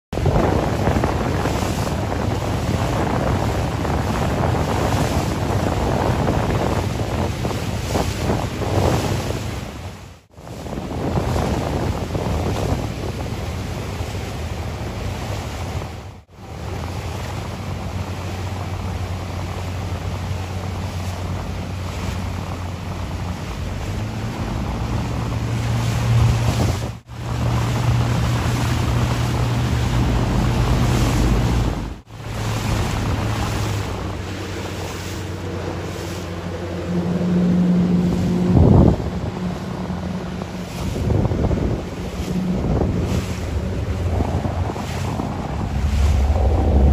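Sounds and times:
wind buffeting microphone: 0:00.1 - 0:46.9
outboard motor droning: 0:00.2 - 0:46.9
hiss of boat wash: 0:16.2 - 0:37.2.

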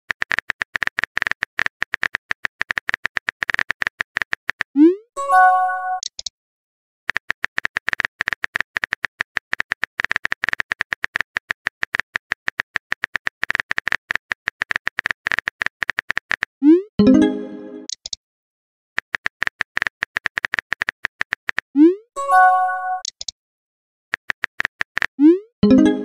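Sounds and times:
phone keyboard typing clicks: 0:00.1 - 0:04.7, 0:06.0 - 0:06.3, 0:07.1 - 0:16.5, 0:17.8 - 0:18.2, 0:19.0 - 0:21.7, 0:23.0 - 0:23.4, 0:24.1 - 0:25.2
multi-tone chime: 0:05.2 - 0:06.0, 0:17.0 - 0:17.9, 0:22.2 - 0:23.0, 0:25.6 - 0:26.0.

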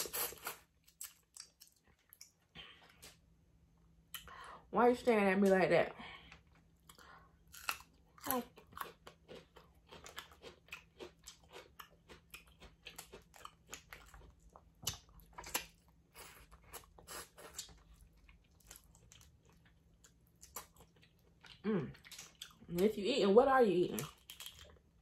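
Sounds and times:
person chewing and biting food: 0:06.8 - 0:22.6.

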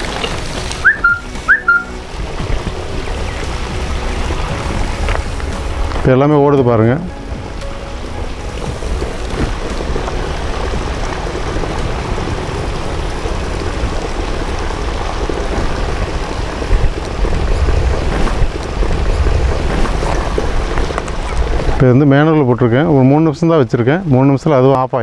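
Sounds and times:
wind buffeting microphone: 0:00.0 - 0:24.9.

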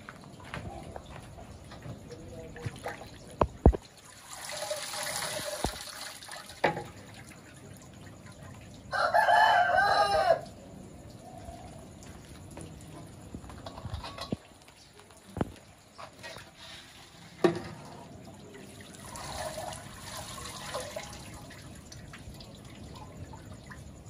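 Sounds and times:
broth splashing: 0:02.5 - 0:08.9
rooster crowing: 0:08.9 - 0:10.6.

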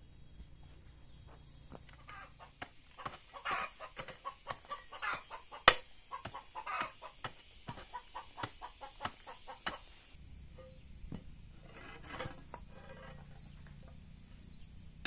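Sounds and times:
chickens clucking: 0:01.0 - 0:10.9
hoe chopping into soil and stone: 0:01.6 - 0:10.0, 0:10.6 - 0:14.4.

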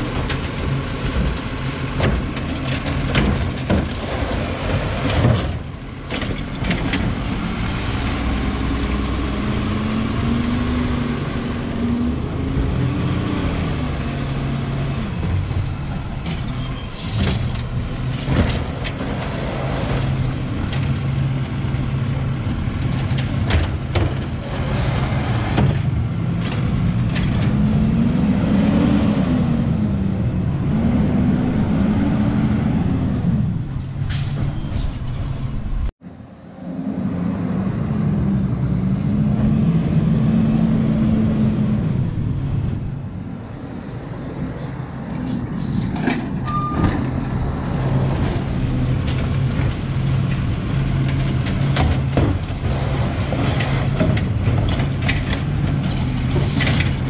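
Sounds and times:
diesel engine revving: 0:06.5 - 0:16.2, 0:22.4 - 0:33.8, 0:36.6 - 0:43.0
hydraulic squeals and hiss: 0:15.8 - 0:18.0, 0:20.8 - 0:22.4, 0:33.8 - 0:35.9, 0:43.5 - 0:47.2, 0:55.7 - 0:57.0.

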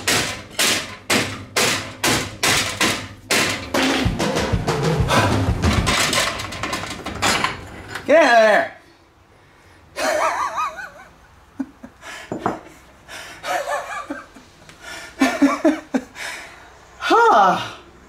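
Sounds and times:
knock: 0:00.1 - 0:06.3
man laughing: 0:04.9 - 0:05.7, 0:10.0 - 0:12.0, 0:13.4 - 0:14.4, 0:15.2 - 0:16.2.

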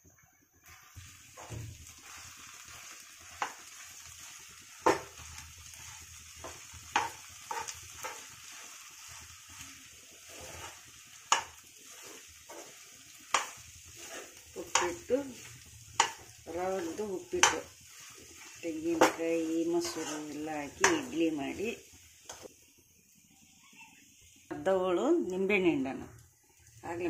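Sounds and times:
sizzling hiss: 0:00.0 - 0:27.0
metal spoon stirring food: 0:00.7 - 0:22.5
spoon knocking against pan: 0:04.8 - 0:05.1, 0:06.4 - 0:08.2, 0:11.3 - 0:11.6, 0:17.3 - 0:17.7.

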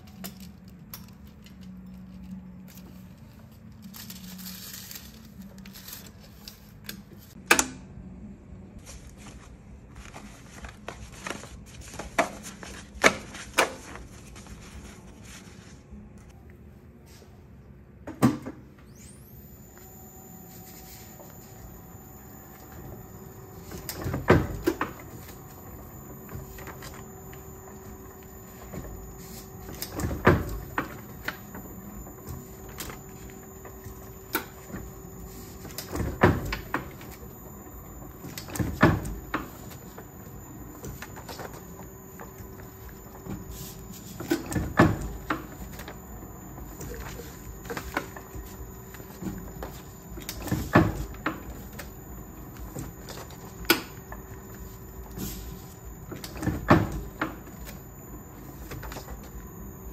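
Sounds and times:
printing press clanking: 0:22.2 - 0:59.9.

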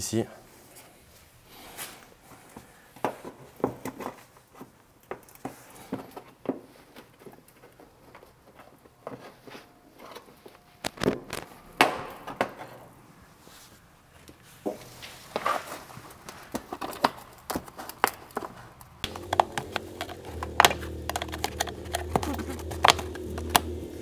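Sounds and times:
screwdriver prying plastic clips: 0:19.0 - 0:23.8
plastic liner flexing and knocking: 0:19.0 - 0:24.0.

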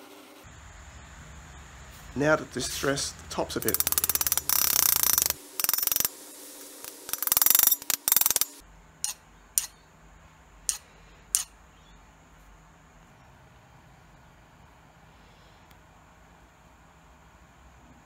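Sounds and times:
sharp clicks: 0:03.6 - 0:06.1, 0:06.8 - 0:08.6.

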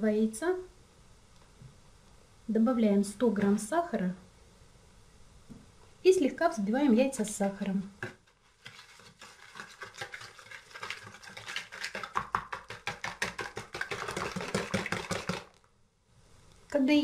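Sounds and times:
whisk beating in plastic bowl: 0:08.6 - 0:15.6.

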